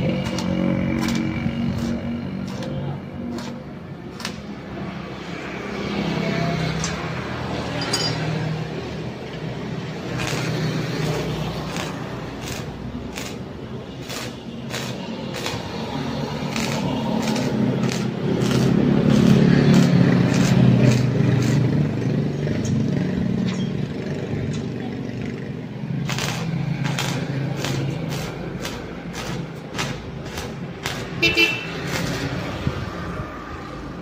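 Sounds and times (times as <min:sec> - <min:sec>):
arc welding buzz with crackle: 0:00.0 - 0:04.6, 0:09.8 - 0:22.9, 0:25.9 - 0:32.7.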